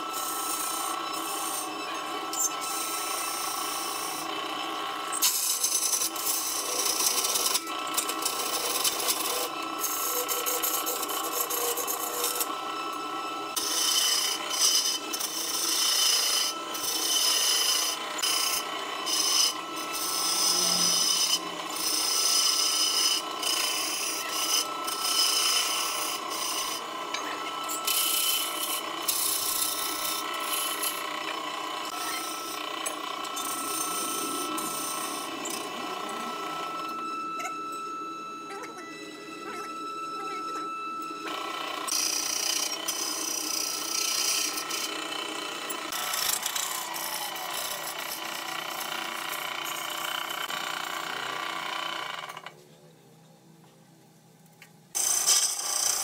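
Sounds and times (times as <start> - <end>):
lathe tool scraping wood: 0.0 - 52.5.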